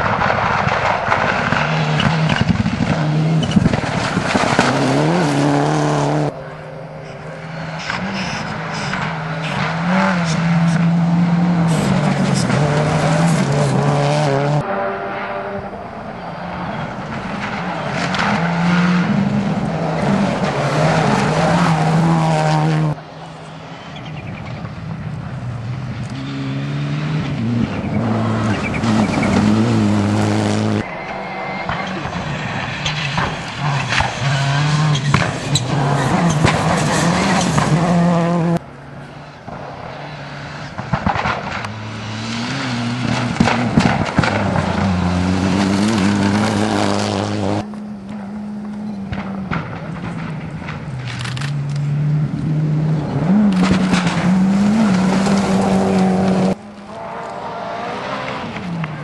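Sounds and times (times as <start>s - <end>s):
tyres on loose gravel: 0.0s - 14.3s, 27.4s - 40.0s, 40.6s - 51.8s, 52.9s - 59.0s
rally cars accelerating past: 0.0s - 23.2s, 24.0s - 38.6s, 39.2s - 59.0s.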